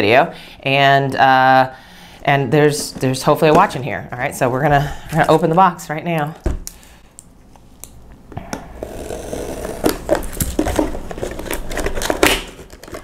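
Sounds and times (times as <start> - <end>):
cardboard rustling and scraping: 8.8 - 13.0.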